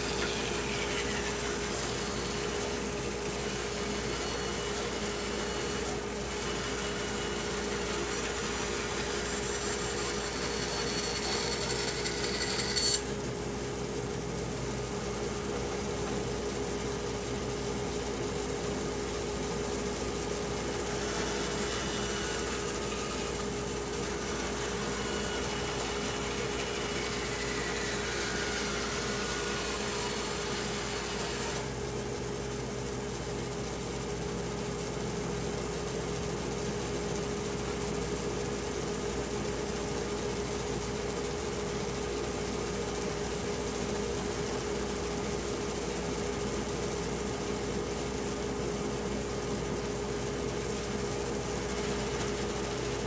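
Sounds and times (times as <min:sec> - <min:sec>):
machine cutting through wood: 0:00.0 - 0:13.1, 0:20.8 - 0:31.8
woodworking power tool humming: 0:00.0 - 0:16.6, 0:17.5 - 0:34.1, 0:42.6 - 0:53.0.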